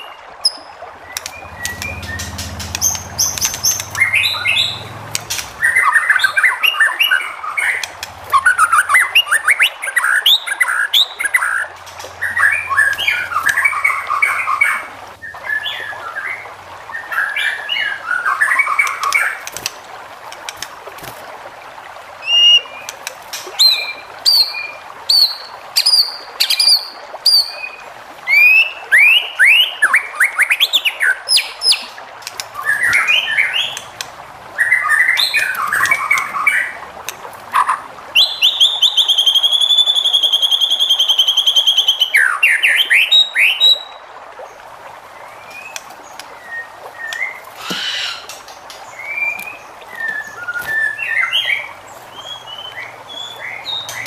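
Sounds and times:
bird singing: 0:00.0 - 0:19.6, 0:28.3 - 0:36.8, 0:37.5 - 0:44.0, 0:45.2 - 0:54.0.

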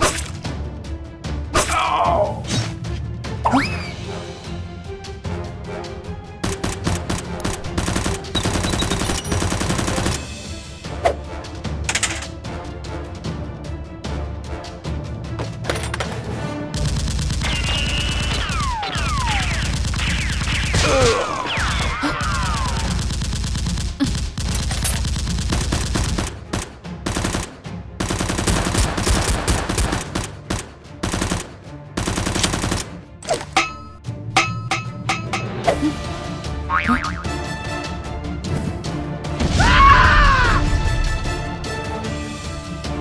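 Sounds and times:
background music: 0:00.0 - 0:43.0
rapid automatic gunfire: 0:06.4 - 0:10.3, 0:16.8 - 0:21.0, 0:21.6 - 0:32.9.

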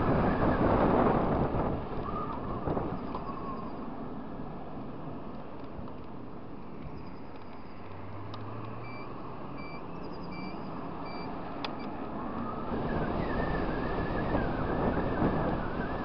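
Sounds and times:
wind and road noise: 0:00.0 - 0:16.0
short beeps: 0:08.8 - 0:11.9.

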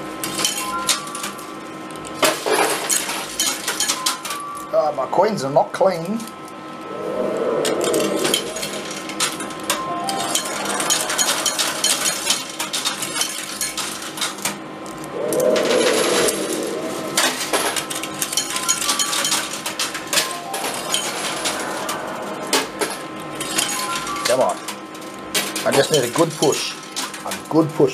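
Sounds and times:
coins clinking: 0:18.1 - 0:22.0.

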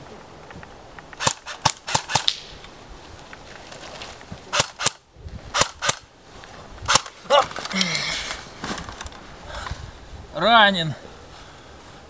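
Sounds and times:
airsoft rifle shots: 0:01.1 - 0:02.5, 0:04.5 - 0:06.1, 0:06.9 - 0:07.1.

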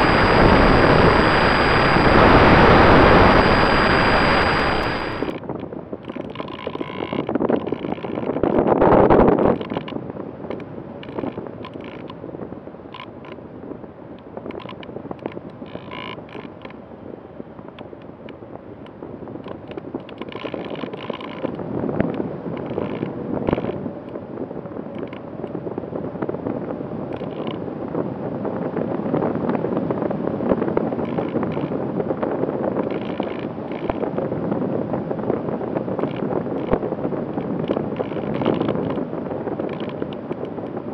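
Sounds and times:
wind rushing over plane: 0:00.0 - 0:40.9
airframe clicks and creaks: 0:04.5 - 0:12.2, 0:12.9 - 0:13.4, 0:14.1 - 0:16.8, 0:17.6 - 0:24.2, 0:24.8 - 0:25.6, 0:27.1 - 0:27.6, 0:30.7 - 0:31.8, 0:32.7 - 0:34.2, 0:35.9 - 0:40.8.

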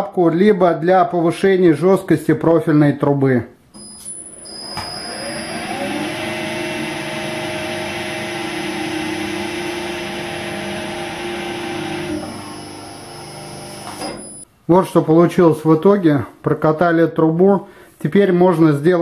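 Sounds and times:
electric motor humming: 0:04.3 - 0:14.4.

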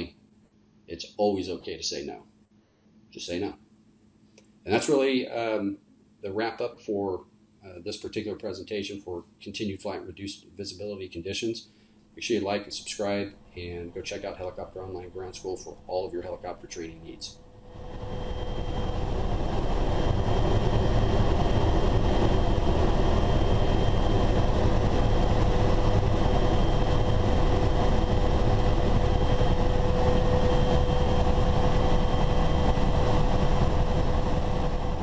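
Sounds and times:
thin whining tones: 0:13.1 - 0:35.0
helicopter engine and rotor rumble: 0:13.4 - 0:35.0.

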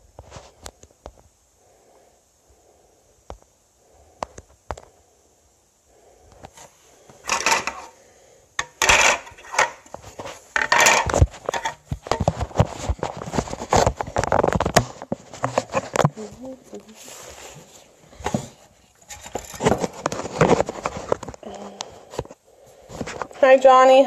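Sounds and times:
rustling: 0:05.9 - 0:23.9
small hard objects clattering: 0:07.2 - 0:08.0, 0:08.6 - 0:16.3, 0:18.2 - 0:21.6.

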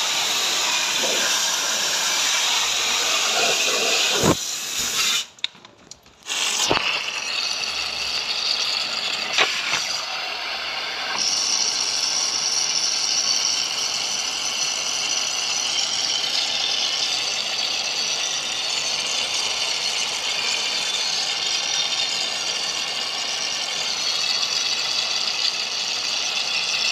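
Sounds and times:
pressure washer spraying water: 0:00.0 - 0:05.3, 0:06.2 - 0:08.0, 0:08.6 - 0:11.4.

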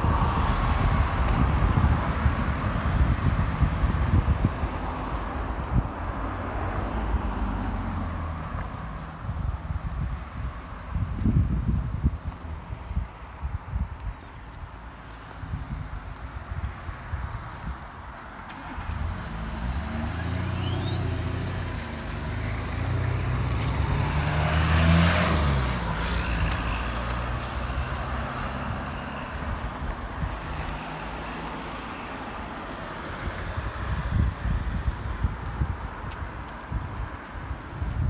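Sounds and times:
vehicle driving past: 0:18.6 - 0:29.6.

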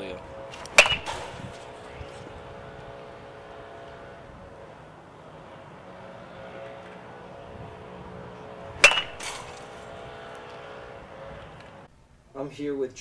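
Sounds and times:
metal bat pinging a ball: 0:00.5 - 0:02.0, 0:08.8 - 0:09.9.

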